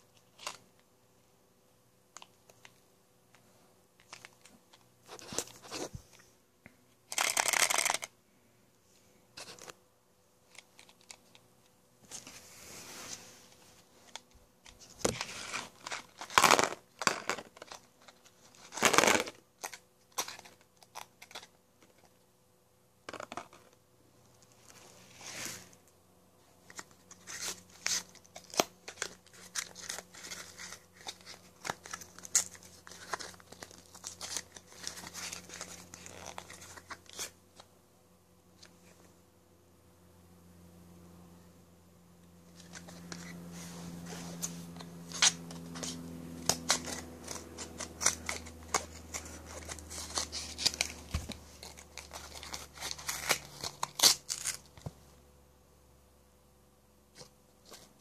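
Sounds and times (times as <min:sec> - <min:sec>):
packaging crinkling and tearing: 0:14.1 - 0:21.6, 0:26.6 - 0:37.3, 0:42.6 - 0:43.4, 0:45.1 - 0:54.9.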